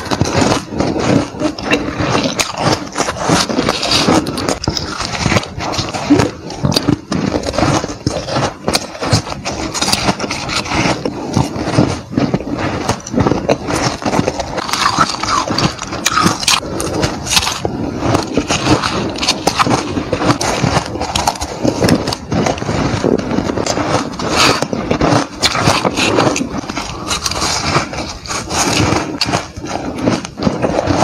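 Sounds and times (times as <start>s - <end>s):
crisp crunching of shaved ice: 0.0s - 31.0s.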